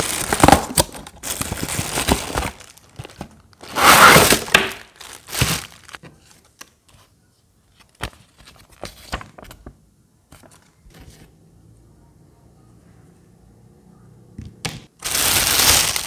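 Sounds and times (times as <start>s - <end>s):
plastic bag crinkling: 0.0s - 6.0s, 15.0s - 16.0s
cardboard rubbing: 3.7s - 4.6s.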